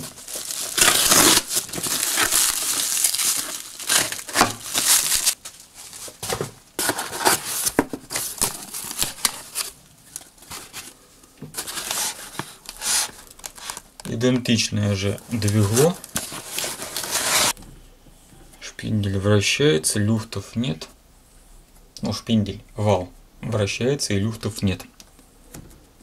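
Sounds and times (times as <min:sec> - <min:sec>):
plastic wrap crinkling and tearing: 0:00.0 - 0:06.2, 0:06.8 - 0:11.0, 0:11.6 - 0:14.0, 0:15.2 - 0:17.6
cardboard flaps rustling and scraping: 0:00.0 - 0:09.8, 0:10.4 - 0:13.8, 0:15.3 - 0:17.6.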